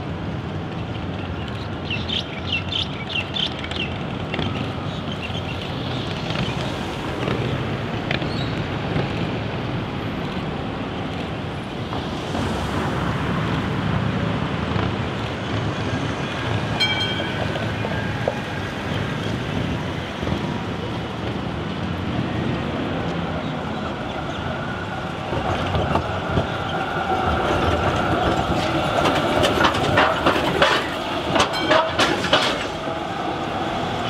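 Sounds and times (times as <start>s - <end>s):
passing car traffic: 0.0s - 34.0s
tram rolling along track: 0.0s - 34.0s
wind buffeting microphone: 0.0s - 34.0s.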